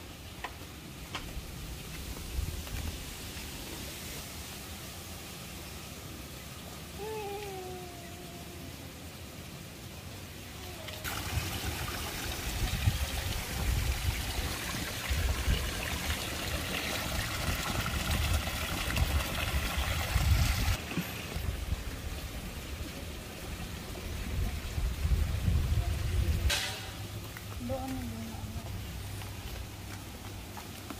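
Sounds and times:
water splashing into pond: 9.8 - 27.6.

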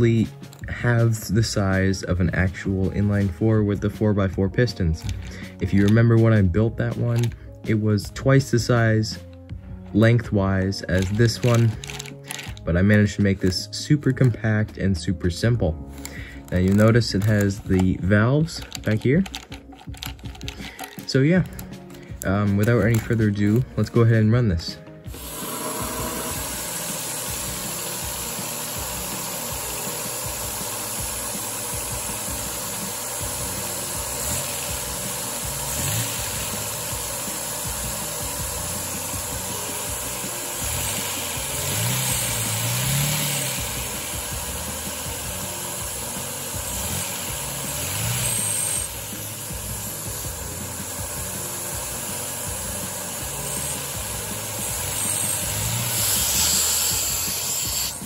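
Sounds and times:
small engine running: 10.9 - 13.2, 25.1 - 58.0
vacuum cleaner rushing: 25.1 - 58.0.

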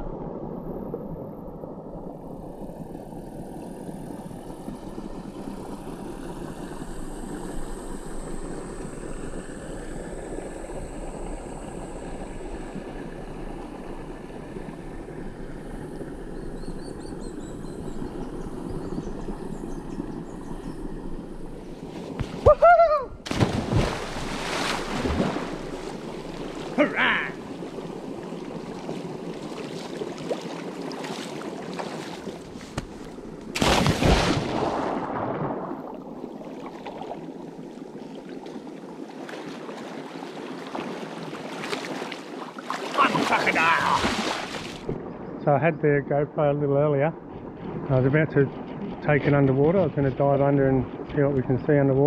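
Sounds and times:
creek water flowing: 0.0 - 52.0
person swimming splashing: 21.8 - 27.8, 28.7 - 35.7, 39.2 - 44.9.

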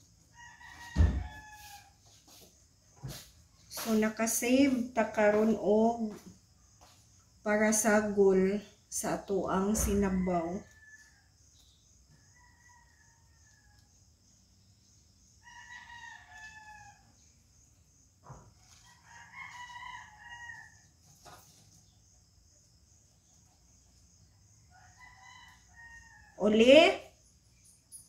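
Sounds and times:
roosters crowing faintly: 0.3 - 3.9.

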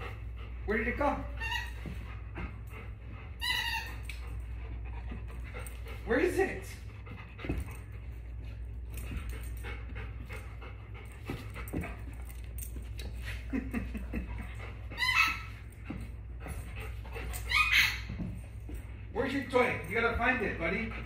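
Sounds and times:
dog panting: 0.0 - 21.0
dog whining: 1.3 - 2.0, 3.3 - 4.3, 14.9 - 15.8, 16.8 - 18.4.

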